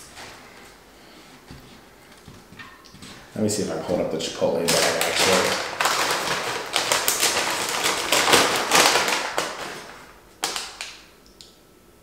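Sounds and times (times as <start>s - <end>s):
paper bag crinkling: 4.4s - 11.0s.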